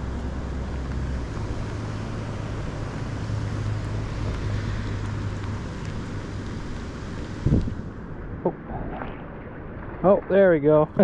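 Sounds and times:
rain falling on water: 0:00.0 - 0:11.0
wind on microphone: 0:07.2 - 0:11.0.

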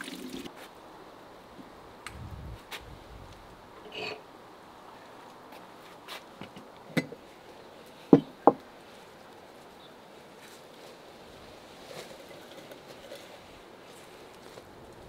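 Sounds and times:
rustle of leaves dropped in pot: 0:11.8 - 0:14.7.

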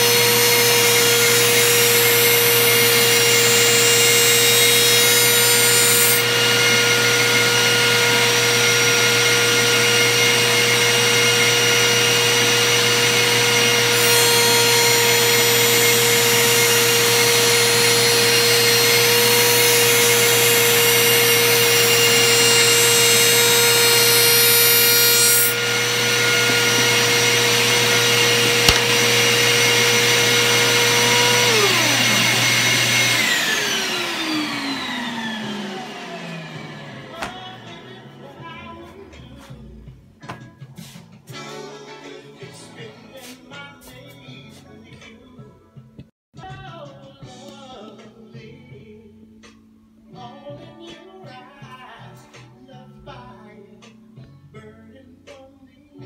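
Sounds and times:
router motor running: 0:00.0 - 0:37.4
shop vacuum running: 0:00.0 - 0:38.6.

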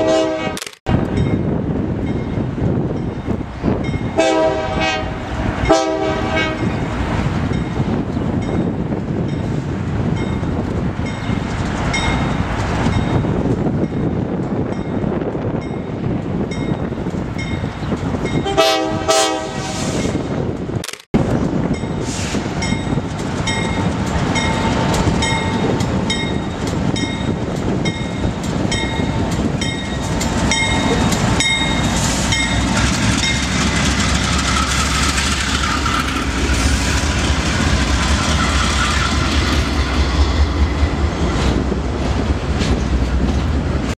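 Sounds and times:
locomotive rumble: 0:00.9 - 0:44.0
freight cars rumbling: 0:20.0 - 0:44.0
crossing bell clanging: 0:22.6 - 0:36.3.

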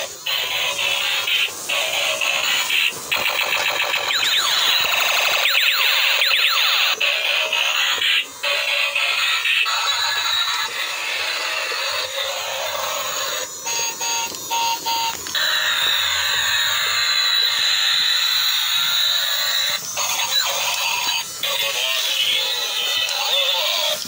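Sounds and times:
steady high electronic tone: 0:00.0 - 0:24.0
toy short beeps: 0:03.5 - 0:06.8, 0:13.7 - 0:15.2.

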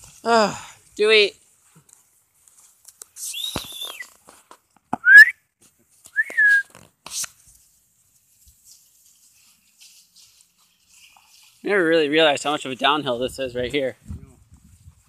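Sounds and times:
dry leaves rustling underfoot: 0:00.0 - 0:04.6, 0:06.8 - 0:13.2
person whistling to call dog: 0:03.2 - 0:04.1, 0:05.0 - 0:05.4, 0:06.2 - 0:06.7.

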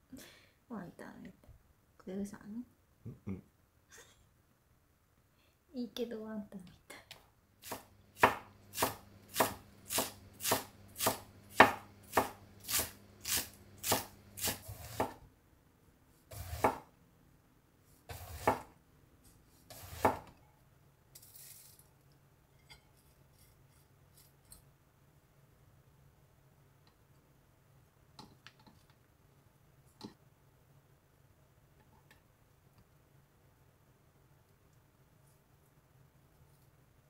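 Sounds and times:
knife chopping on wooden board: 0:07.6 - 0:15.2, 0:16.3 - 0:16.8, 0:18.1 - 0:18.7, 0:19.7 - 0:20.3.

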